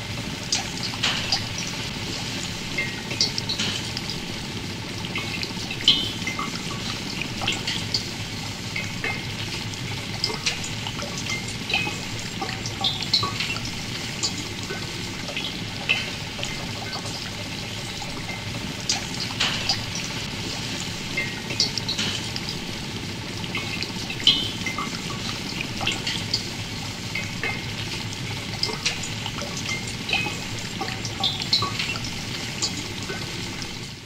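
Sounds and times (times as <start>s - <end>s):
liquid bubbling and gurgling: 0.0s - 34.0s.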